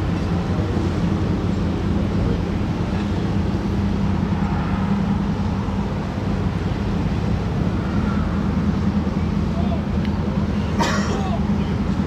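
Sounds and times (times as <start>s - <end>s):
ship diesel engines droning: 0.0s - 12.0s.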